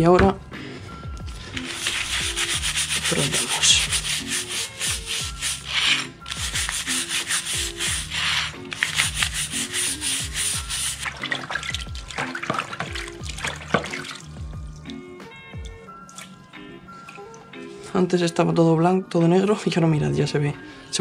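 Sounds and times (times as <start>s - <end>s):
background music: 0.0s - 21.0s
scrubbing bicycle chainring: 1.3s - 14.2s.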